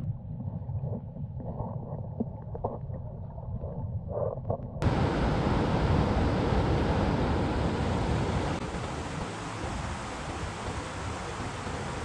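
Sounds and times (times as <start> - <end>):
muffled rumble: 0.0 - 10.9
river rushing: 4.8 - 12.0.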